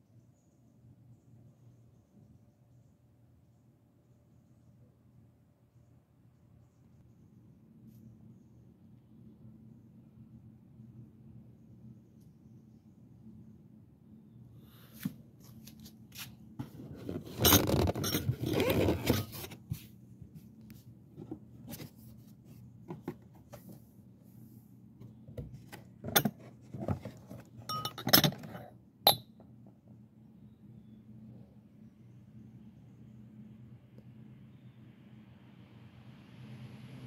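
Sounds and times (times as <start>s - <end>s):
cardboard box rustling and scraping: 15.0s - 20.5s, 21.1s - 23.9s, 25.1s - 27.6s
glass goblets clinking: 27.6s - 29.2s.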